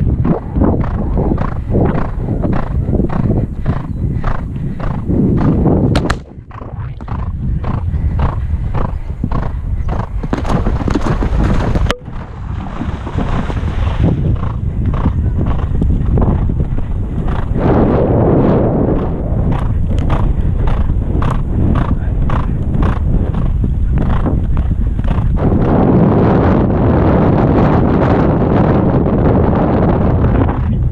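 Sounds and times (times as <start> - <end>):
horse breathing: 0.0 - 17.6, 18.8 - 25.4
horse hoofbeats galloping: 0.0 - 17.7, 18.7 - 25.8
wind rumbling on microphone: 0.0 - 30.9.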